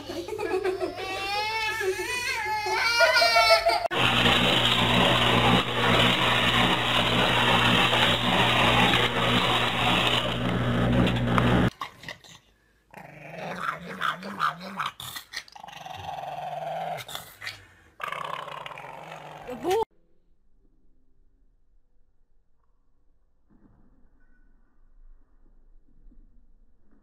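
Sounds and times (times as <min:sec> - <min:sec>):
loud steady noise with low hum: 0:03.9 - 0:11.7
dog growling: 0:12.0 - 0:19.8.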